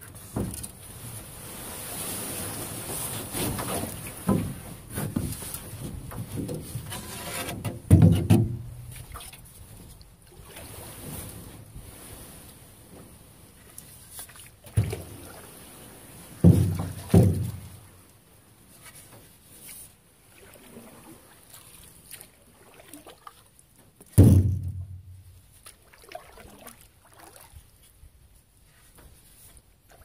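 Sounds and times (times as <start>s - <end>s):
paddle water strokes: 0.0s - 24.3s, 25.2s - 30.0s
paddle knocking on canoe hull: 7.6s - 9.0s, 16.4s - 17.9s, 24.2s - 25.2s.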